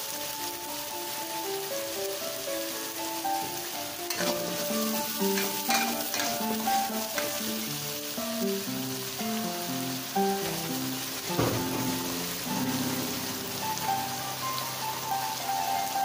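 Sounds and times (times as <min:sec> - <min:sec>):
spice paste sizzling in oil: 0:00.0 - 0:16.0
metal spatula scraping pan: 0:04.1 - 0:07.4.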